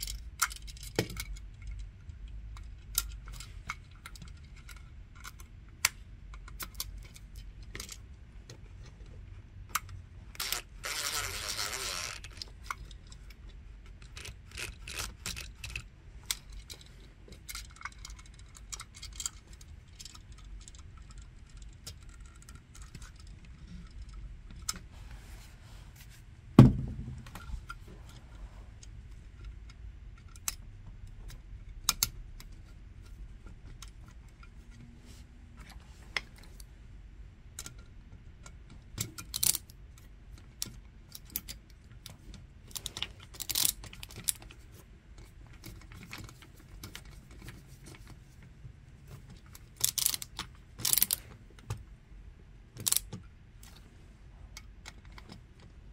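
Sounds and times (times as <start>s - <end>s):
loud thump: 26.6s - 27.3s.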